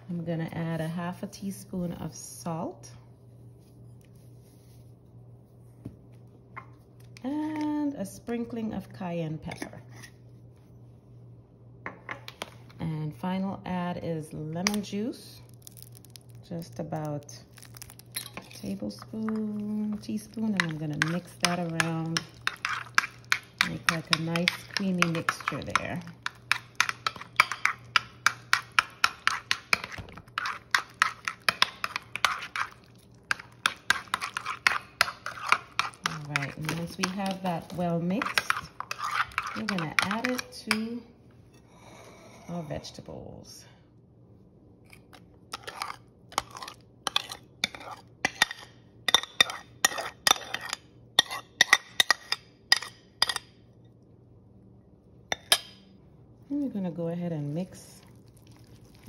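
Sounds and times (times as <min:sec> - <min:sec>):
fork scraping and tapping a bowl: 0:20.4 - 0:40.8, 0:45.5 - 0:53.5.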